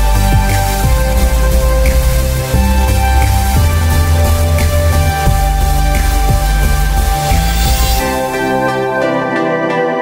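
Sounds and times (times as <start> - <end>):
music with deep bass notes: 0.0 - 10.0.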